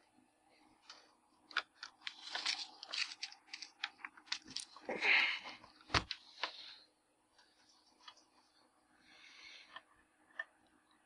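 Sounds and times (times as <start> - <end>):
small clicks and rustles: 0.8 - 4.9.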